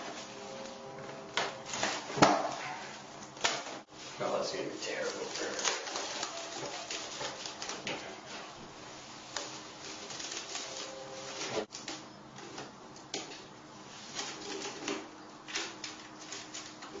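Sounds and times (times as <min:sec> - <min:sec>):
plastic cling wrap crackling: 0:03.3 - 0:08.6, 0:09.2 - 0:12.0.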